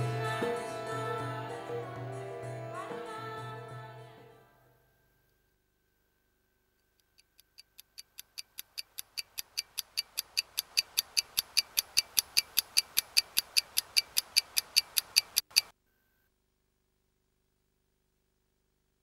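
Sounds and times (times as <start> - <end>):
mechanical watch ticking: 6.8 - 15.7
sharp click: 7.0 - 15.7.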